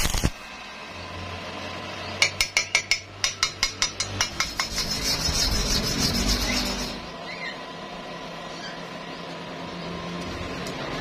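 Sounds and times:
welding arc burst: 0.0 - 0.4
steel bar tapping metal: 2.2 - 5.3.

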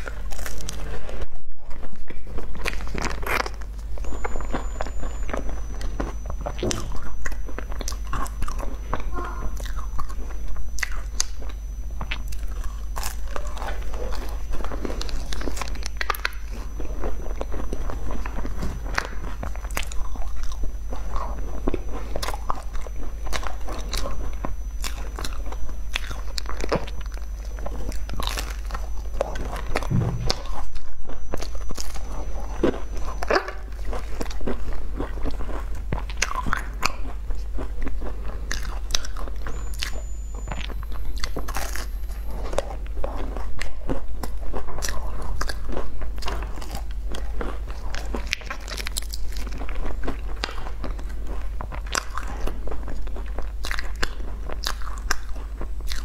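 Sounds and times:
low hum: 0.0 - 44.5
crunching and chewing pastry: 0.0 - 56.0.

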